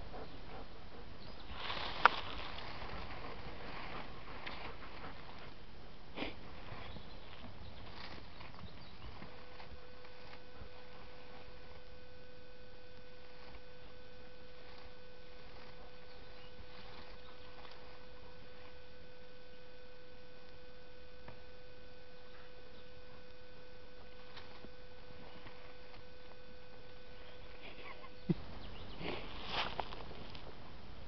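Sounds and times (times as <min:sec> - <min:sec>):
dog paws scratching soil: 0:00.0 - 0:12.0, 0:13.0 - 0:18.8, 0:27.2 - 0:30.6
electrical hum: 0:00.0 - 0:31.0
earth pattering: 0:01.4 - 0:18.9.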